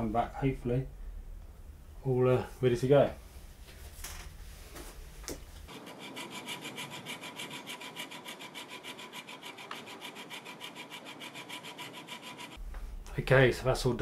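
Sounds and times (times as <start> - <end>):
hacksaw cutting plastic: 5.7 - 12.6.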